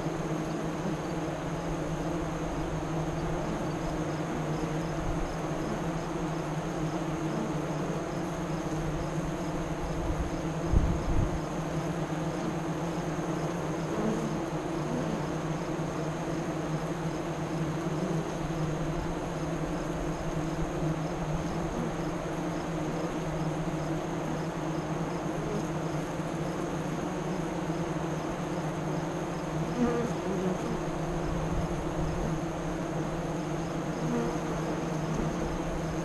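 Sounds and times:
bee buzzing past: 0.0s - 36.0s
bees humming at hive: 0.0s - 36.0s.

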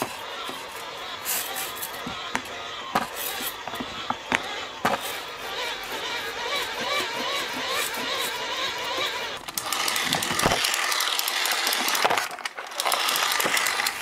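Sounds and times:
wavering whine: 0.0s - 12.1s
mechanical rattle of rapid clicks: 5.4s - 14.0s.

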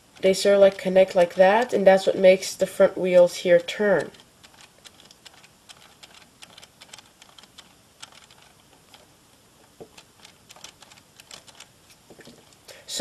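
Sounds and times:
plastic parts clicking: 4.0s - 11.7s.

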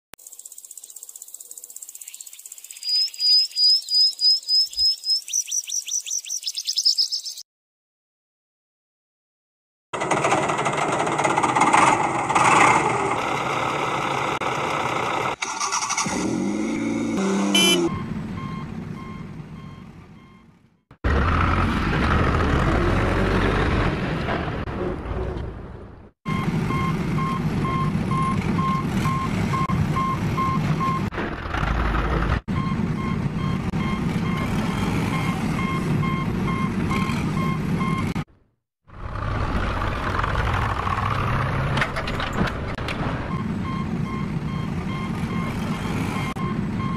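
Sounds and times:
vehicle engine running: 10.0s - 15.5s
reversing alarm beeping: 17.6s - 20.6s, 26.3s - 31.1s, 32.5s - 38.2s, 43.3s - 46.9s.

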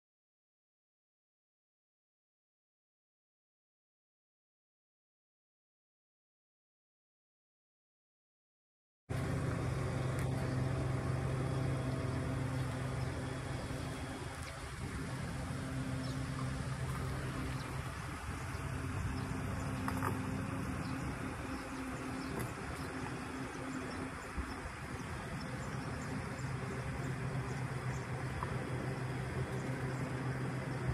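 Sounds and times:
pickup truck engine running: 9.1s - 30.9s.

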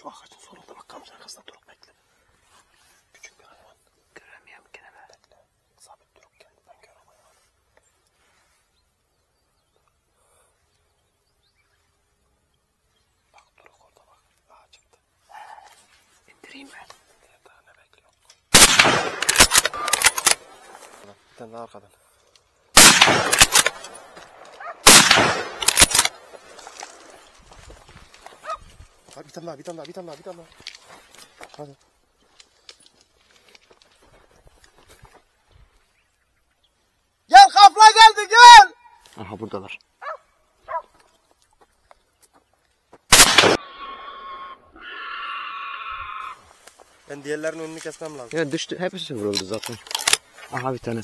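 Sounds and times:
rifle shots echoing: 18.5s - 20.8s, 22.7s - 26.6s, 43.1s - 44.0s
boar squealing: 43.6s - 46.5s.

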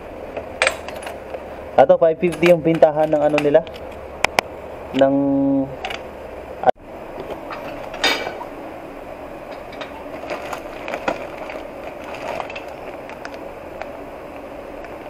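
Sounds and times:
background hum: 0.0s - 15.0s
metal pedals clinking: 0.3s - 1.5s, 2.2s - 4.1s, 7.2s - 8.5s.

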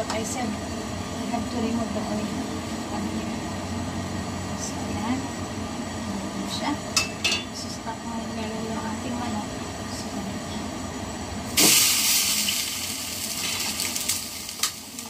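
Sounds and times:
gas flame hissing: 0.0s - 15.0s
loud sizzle of chicken in pot: 10.9s - 15.0s.

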